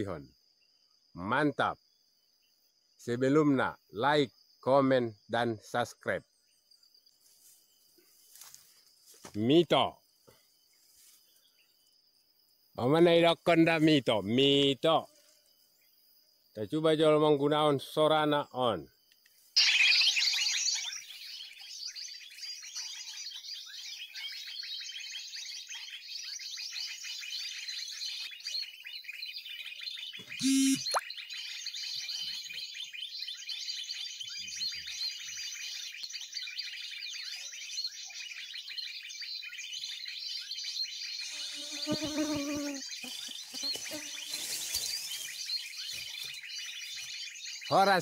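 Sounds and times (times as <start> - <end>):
lower-pitched bird call: 19.6 - 21.1, 30.2 - 31.2
recorded bird chirping from phone: 19.6 - 48.0.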